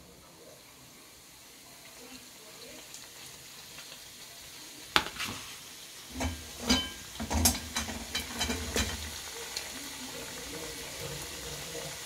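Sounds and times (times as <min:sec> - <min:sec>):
pastries deep-frying in oil: 0:00.0 - 0:12.0.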